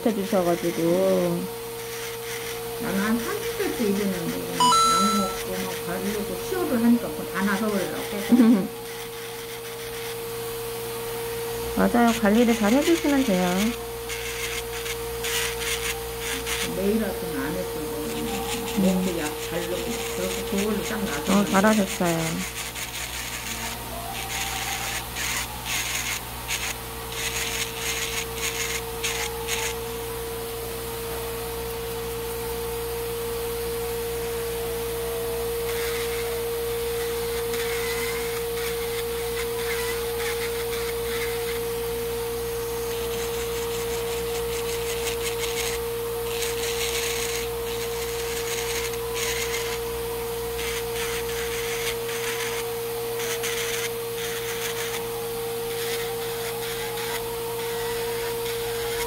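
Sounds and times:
electric nail drill running: 0.0s - 59.0s
drill bit scraping nail: 1.7s - 5.9s, 6.8s - 10.4s, 12.0s - 17.0s, 18.0s - 29.9s, 35.6s - 59.0s.

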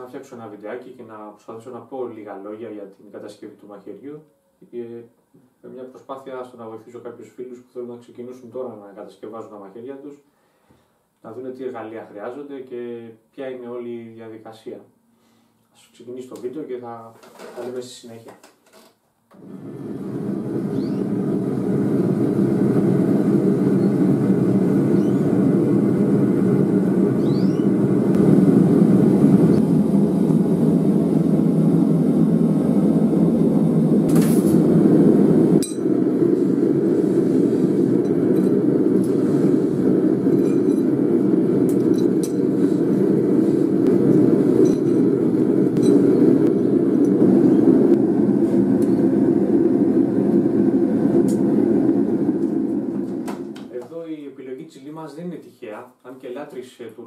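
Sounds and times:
forge burner rushing: 19.4s - 53.7s.

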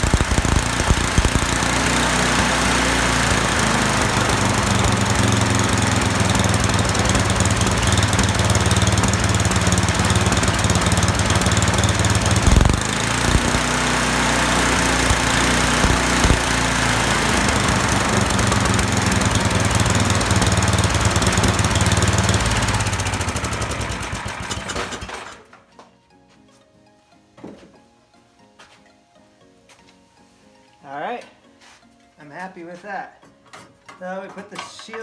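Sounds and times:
snowblower engine running: 0.0s - 25.6s.

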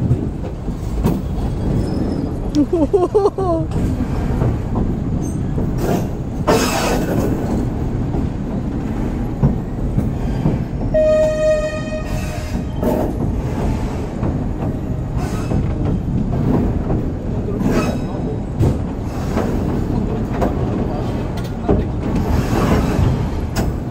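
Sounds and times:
train wheels rumbling and rattling: 0.0s - 23.9s
train horn blast: 10.9s - 12.7s.

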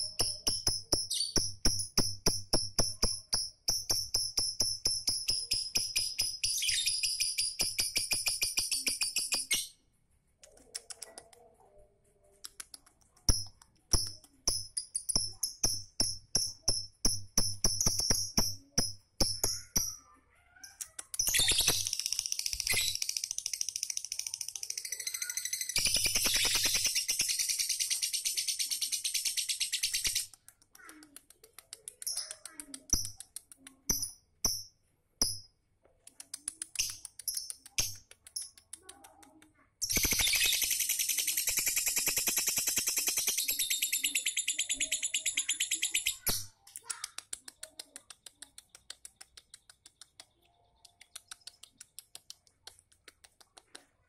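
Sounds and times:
bird chattering: 0.0s - 9.8s, 12.4s - 34.7s, 36.1s - 53.9s
faint clicks: 10.4s - 11.6s, 30.1s - 33.9s, 46.6s - 54.0s.

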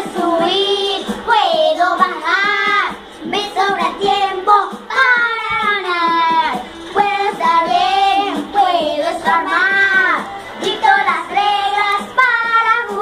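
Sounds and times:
young children singing: 0.0s - 13.0s.

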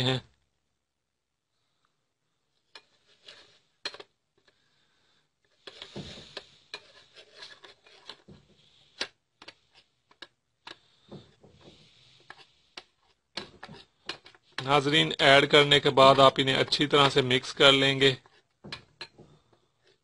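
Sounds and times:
spoon scraping a bowl: 2.8s - 3.6s, 5.6s - 10.2s, 11.7s - 14.6s.

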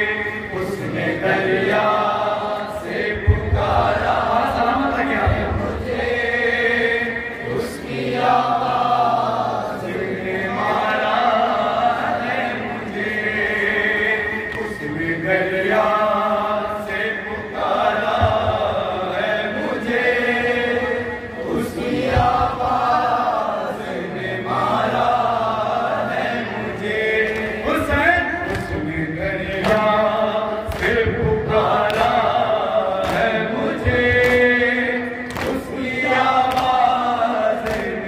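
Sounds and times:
man chanting into a microphone: 0.0s - 7.8s, 26.4s - 38.0s
group of men chanting: 0.0s - 38.0s.

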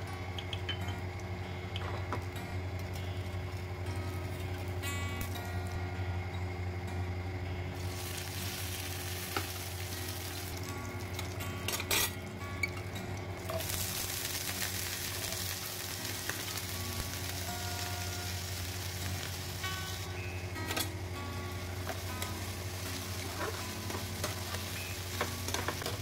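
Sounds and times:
food sizzling in hot oil: 7.8s - 26.0s.

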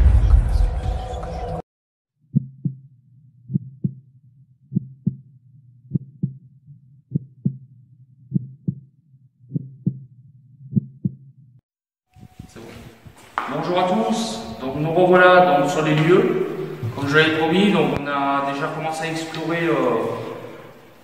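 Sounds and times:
heartbeat thumps: 3.5s - 4.0s, 4.7s - 5.3s, 5.9s - 6.4s, 7.1s - 7.7s, 8.3s - 8.9s, 9.5s - 11.4s.

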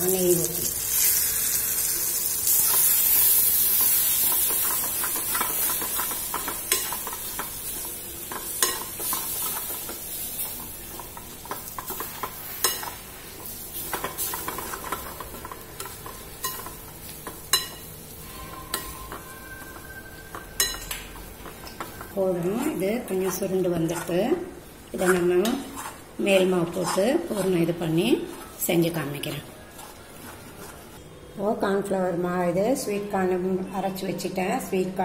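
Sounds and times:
food sizzling in a pan: 0.0s - 31.0s
spoon tapping and scraping pan: 3.7s - 17.9s, 18.6s - 22.2s.

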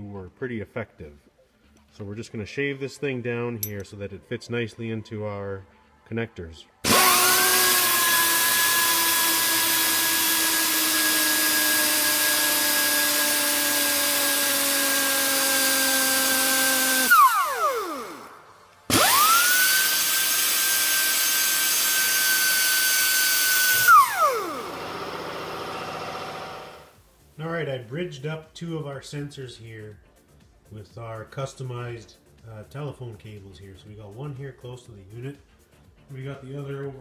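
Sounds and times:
pneumatic belt file whining: 6.8s - 26.9s.

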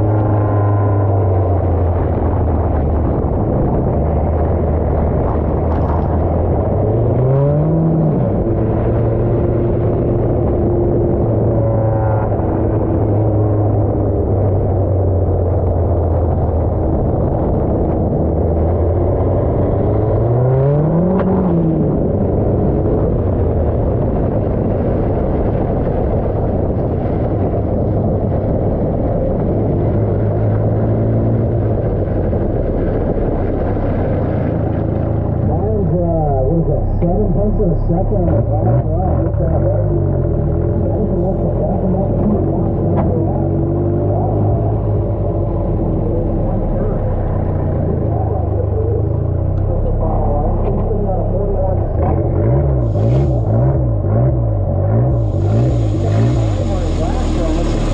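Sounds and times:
pickup engine revving: 0.0s - 24.5s, 29.4s - 57.9s
road and wind noise: 0.0s - 57.9s.

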